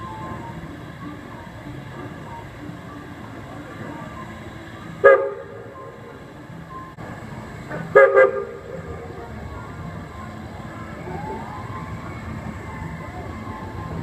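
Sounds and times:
steam whistle toots: 5.0s - 6.0s, 7.9s - 8.9s.

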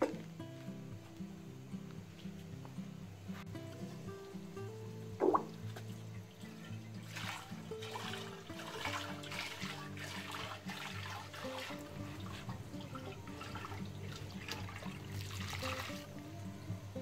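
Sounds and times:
instrumental background music: 0.0s - 17.0s
water splashing into a colander: 5.2s - 5.8s, 6.4s - 16.3s.

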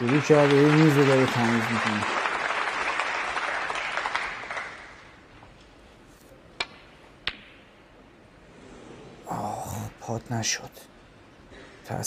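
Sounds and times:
arena applause: 0.0s - 5.2s
snooker balls clicking: 6.5s - 7.9s.

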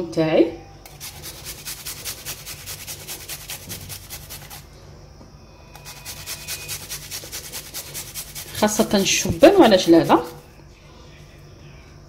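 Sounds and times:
garlic grated on metal grater: 0.9s - 4.6s, 5.8s - 10.4s.

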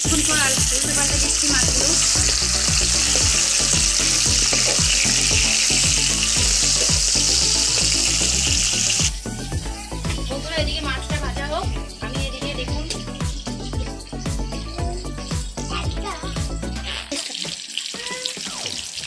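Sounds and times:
fish sizzling in hot oil: 0.0s - 11.4s, 12.3s - 19.0s.

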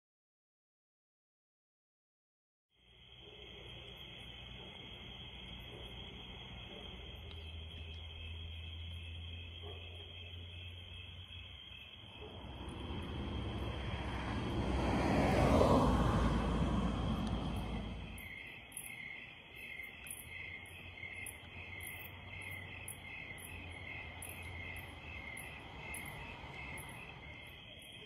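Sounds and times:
insects chirping in pulses: 2.8s - 28.0s
vehicle passing by: 10.4s - 18.5s, 20.8s - 28.0s.

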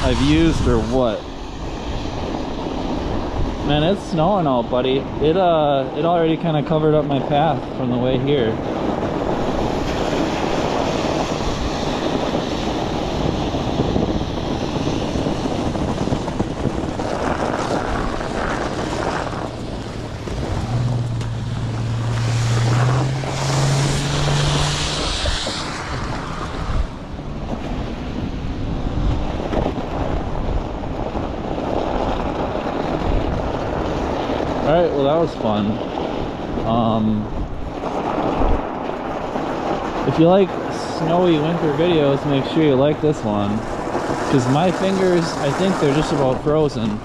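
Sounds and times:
tires rolling through snow: 0.0s - 47.0s
wind on microphone: 0.0s - 47.0s
low motor hum: 16.2s - 29.4s.

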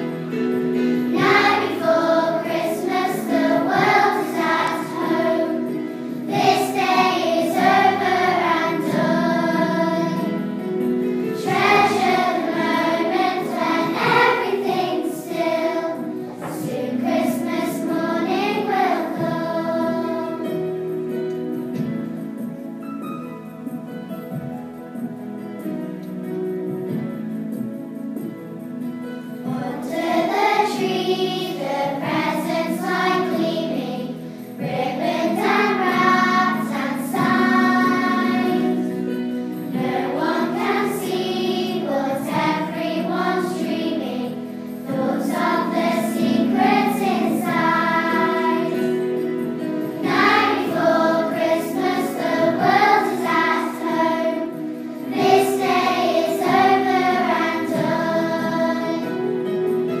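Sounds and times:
children's choir singing: 0.0s - 22.6s, 29.1s - 60.0s.

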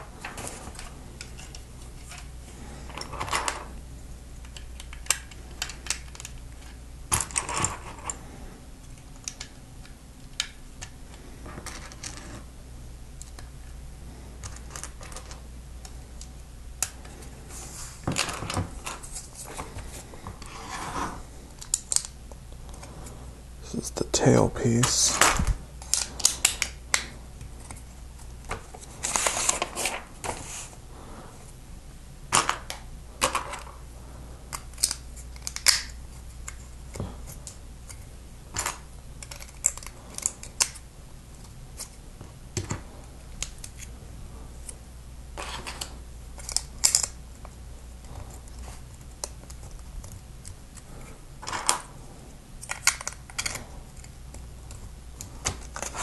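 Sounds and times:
low steady hum: 0.0s - 56.0s.

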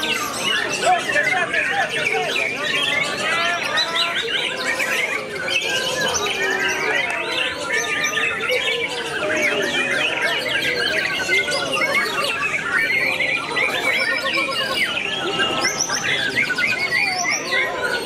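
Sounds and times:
birds singing whistles and trills: 0.0s - 18.0s.

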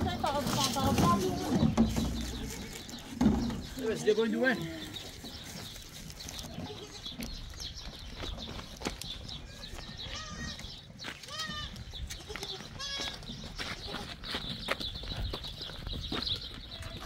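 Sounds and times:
goat bleating: 6.4s - 7.2s, 9.4s - 14.2s.

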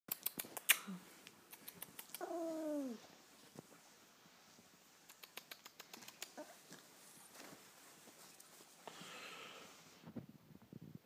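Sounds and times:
sharp clicks: 0.1s - 2.2s, 5.1s - 6.4s
dog whining: 2.1s - 3.1s.

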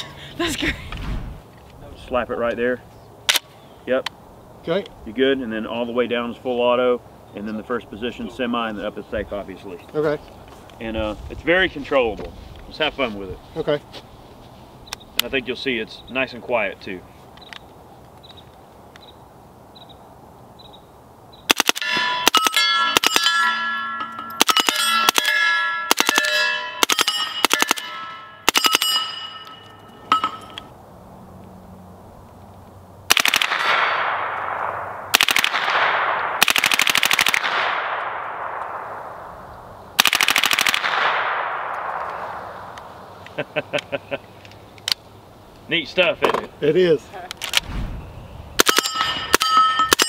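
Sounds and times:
metallic ringing: 21.8s - 30.7s, 48.6s - 50.0s
automatic gunfire bursts: 24.4s - 28.9s, 33.1s - 34.0s, 35.1s - 37.9s, 40.0s - 41.4s.

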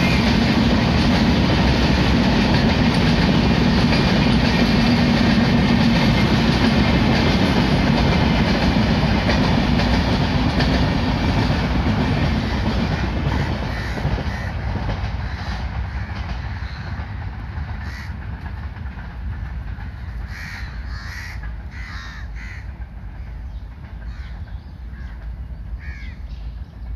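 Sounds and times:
train rumbling past: 0.0s - 26.9s
crows cawing: 12.4s - 17.2s, 17.8s - 18.2s, 19.9s - 23.4s, 24.0s - 26.3s.

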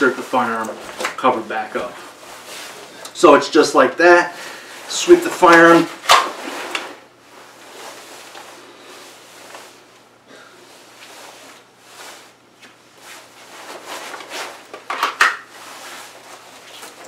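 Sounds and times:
jacket fabric rustling: 0.0s - 17.0s.

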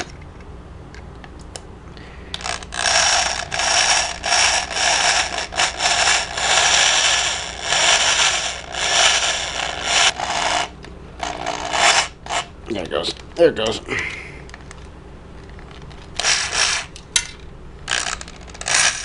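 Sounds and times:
electric drill boring metal: 2.4s - 12.5s, 16.2s - 16.9s, 17.9s - 19.0s.

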